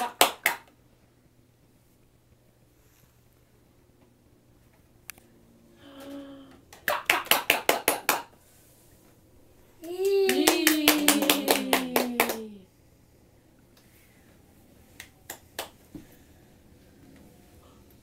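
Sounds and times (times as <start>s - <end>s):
rapid hand clapping: 0.0s - 0.7s, 6.7s - 8.4s, 9.8s - 12.6s, 15.0s - 15.8s
voice holding falling vocal sound: 9.8s - 12.7s.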